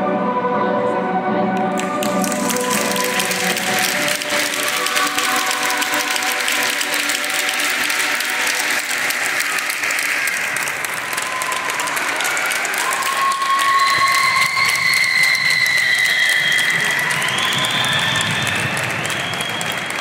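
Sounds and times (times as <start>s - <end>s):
music: 0.0s - 20.0s
audience applauding: 1.6s - 20.0s
crowd whistles: 9.8s - 20.0s.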